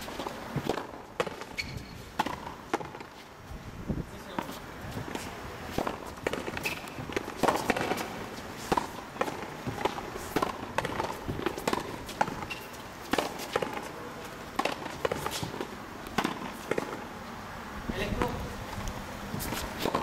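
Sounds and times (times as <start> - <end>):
footsteps on court: 4.2 - 17.0, 18.1 - 20.0
ball cracking off rackets and wall: 5.1 - 17.0.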